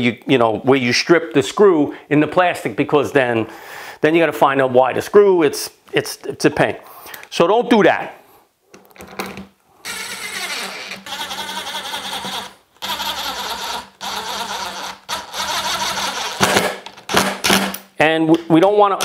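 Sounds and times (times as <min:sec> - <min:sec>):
impact driver driving screws: 0:09.9 - 0:17.8.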